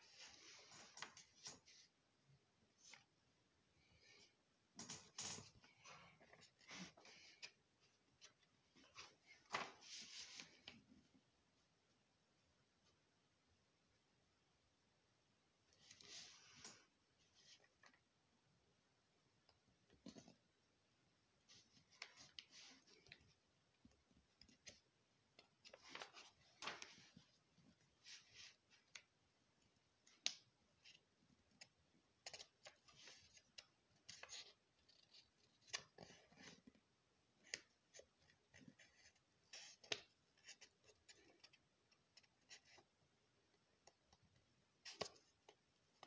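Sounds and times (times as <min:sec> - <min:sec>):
paper rustling: 0:08.2 - 0:10.8, 0:25.4 - 0:27.4.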